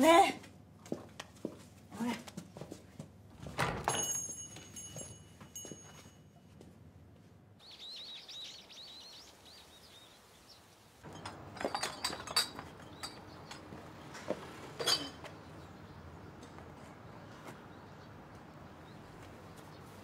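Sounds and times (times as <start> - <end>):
small birds chirping: 7.6 - 11.0, 12.0 - 20.0
glass bottles clinking in crate: 11.1 - 13.7, 14.7 - 15.3.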